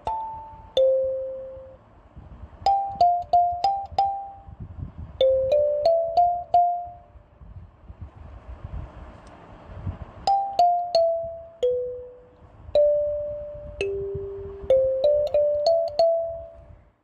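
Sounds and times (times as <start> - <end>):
slow single-note melody: 0.0 - 1.8, 2.7 - 4.6, 5.2 - 7.2, 10.3 - 16.7.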